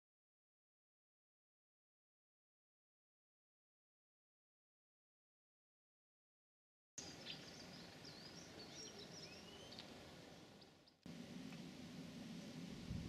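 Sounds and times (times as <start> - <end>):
small birds chirping: 7.0 - 11.7.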